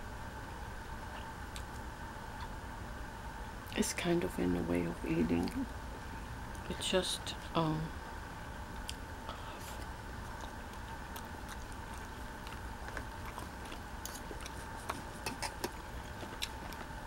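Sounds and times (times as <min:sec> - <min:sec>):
steady low hum: 0:00.0 - 0:17.0
soft chewing: 0:00.8 - 0:02.6, 0:08.7 - 0:17.0.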